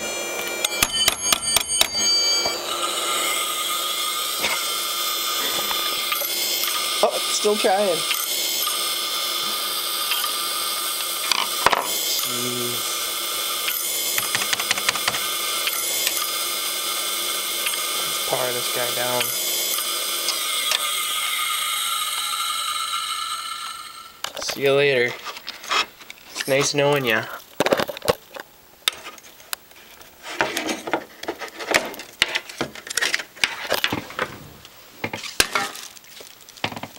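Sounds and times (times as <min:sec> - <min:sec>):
hard drive spindle whine: 0:00.0 - 0:27.2
hard drive head clicking: 0:13.6 - 0:16.4
rustling of handling: 0:29.0 - 0:36.9.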